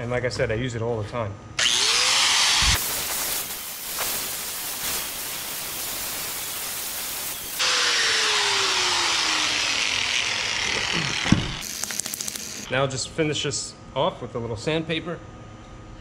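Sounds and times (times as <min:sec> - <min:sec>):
angle grinder sanding plastic: 0:01.6 - 0:12.7.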